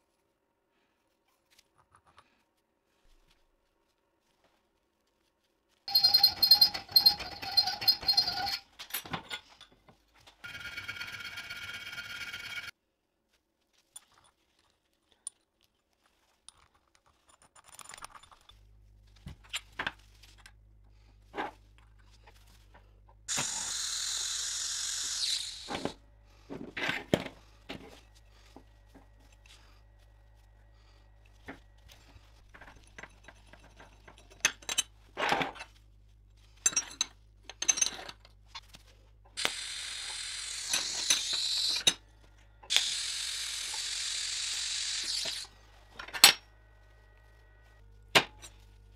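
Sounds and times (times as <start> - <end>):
small steel parts clinking: 5.9 - 9.8
welding arc sizzling: 23.3 - 26.0, 39.4 - 42.0, 42.7 - 45.5
low steady hum: 45.5 - 48.9.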